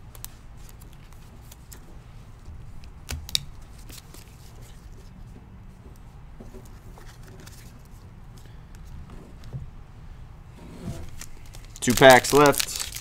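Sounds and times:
cards and wrappers rustling: 6.7s - 8.9s, 11.0s - 13.0s.

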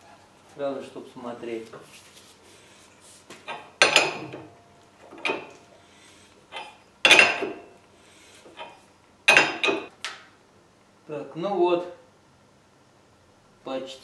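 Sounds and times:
wrench clanking on metal: 3.5s - 5.6s, 6.5s - 7.7s, 8.5s - 9.9s.

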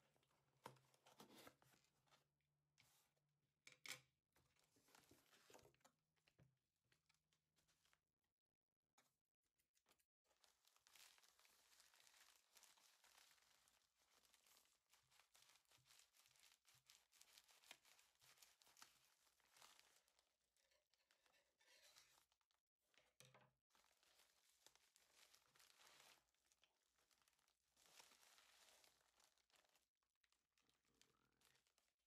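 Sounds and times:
plastic crinkling: 10.3s - 22.4s, 23.7s - 32.0s.

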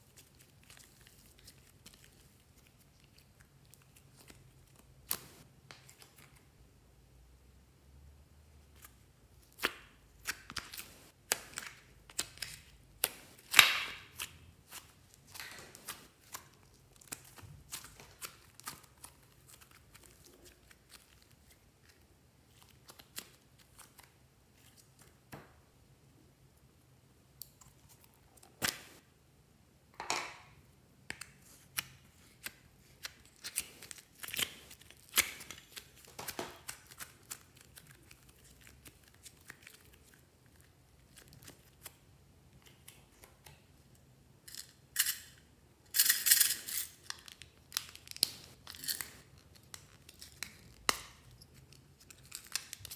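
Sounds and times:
slime squelching and crackling: 0.0s - 6.4s, 8.8s - 25.0s, 31.4s - 42.0s.

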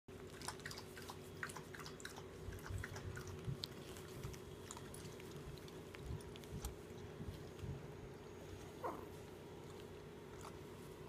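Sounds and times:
steady low hum: 0.1s - 11.0s.

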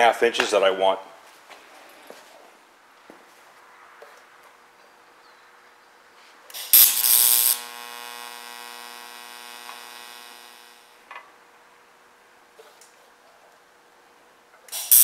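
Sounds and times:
welding arc striking burst: 6.5s - 11.0s, 14.7s - 15.0s
welding arc buzzing hum: 6.5s - 11.2s, 14.7s - 15.0s.

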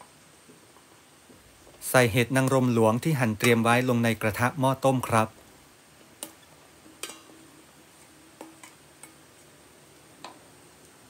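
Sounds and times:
metal bowl and ladle clinking: 6.9s - 7.4s.

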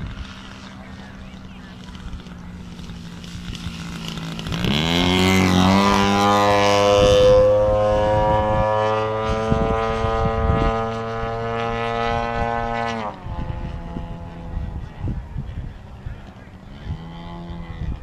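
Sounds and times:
model airplane motor and propeller: 0.0s - 18.0s.

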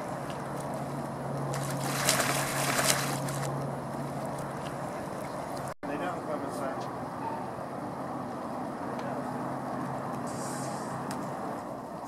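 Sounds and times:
pool water splashing and sloshing: 0.0s - 5.8s.

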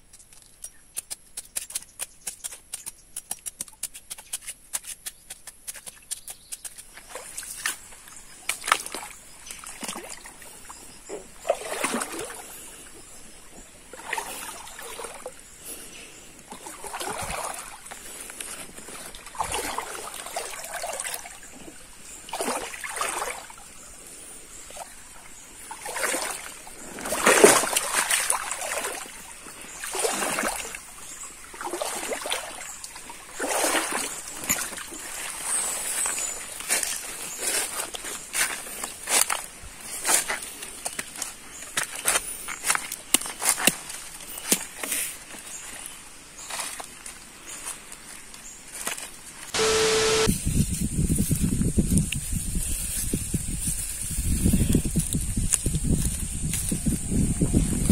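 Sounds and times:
water splashing in a stream: 7.0s - 12.7s, 13.9s - 15.4s, 16.5s - 23.9s, 24.7s - 45.9s
faint high hiss: 49.6s - 50.3s.

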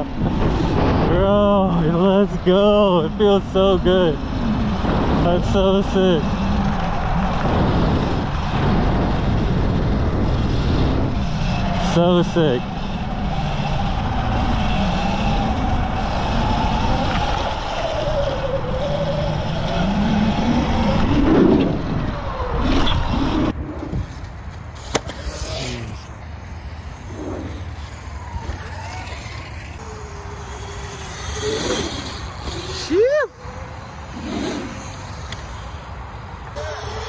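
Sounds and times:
rushing wind: 0.0s - 37.0s
tyre noise: 12.8s - 37.0s
electric motor whine: 27.4s - 35.8s, 36.5s - 37.0s.

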